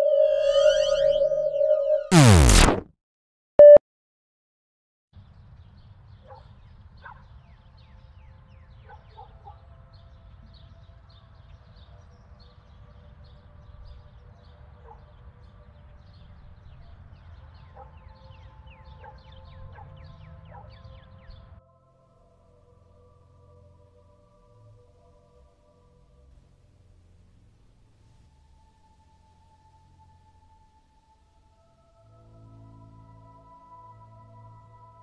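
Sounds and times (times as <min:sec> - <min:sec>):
quick high falling chirps: 0:00.0 - 0:02.8.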